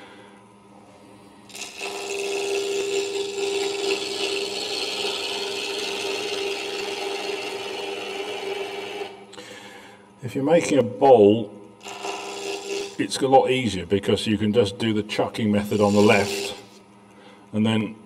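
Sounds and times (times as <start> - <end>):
gouge scraping wood on lathe: 1.5 - 9.2, 11.8 - 13.0, 15.6 - 16.8
lathe humming: 1.5 - 9.4, 11.8 - 13.3, 15.4 - 17.1.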